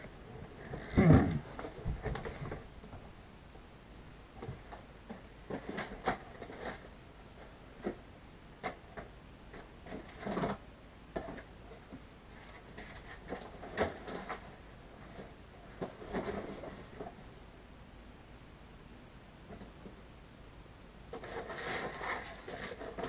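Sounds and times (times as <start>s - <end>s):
knocks and rustles of rummaging: 0.0s - 3.2s, 4.4s - 8.0s, 8.6s - 17.3s, 21.1s - 23.0s.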